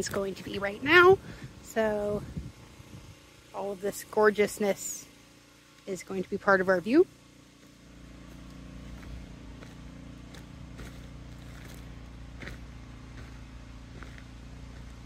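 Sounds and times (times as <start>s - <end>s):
engine humming: 0.0s - 15.0s
footsteps on dry dirt and twigs: 7.5s - 15.0s.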